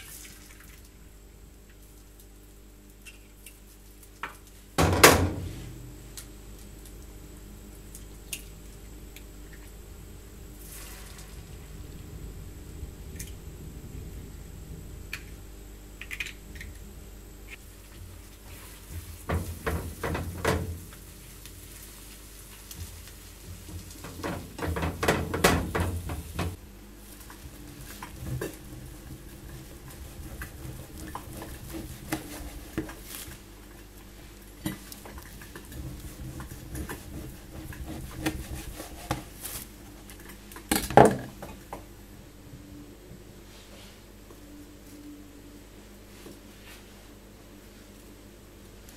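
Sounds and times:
pots and pans clattering: 19.3s - 20.8s, 23.6s - 26.6s.

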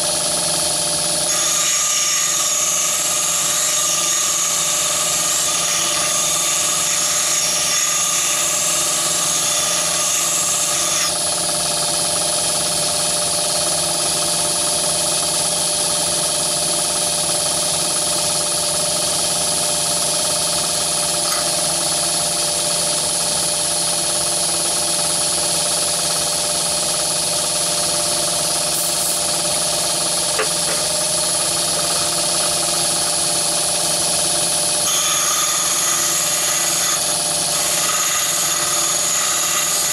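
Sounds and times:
lathe machine whine: 0.0s - 39.9s.

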